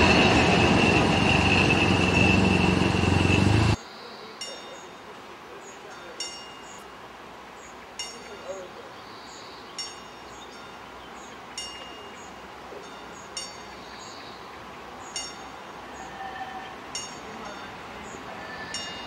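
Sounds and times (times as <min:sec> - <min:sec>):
low railway yard noise: 0:00.0 - 0:19.0
level crossing warning bell: 0:04.4 - 0:05.2, 0:05.8 - 0:07.0, 0:08.0 - 0:08.8, 0:09.8 - 0:10.9, 0:11.6 - 0:13.9, 0:15.1 - 0:19.0.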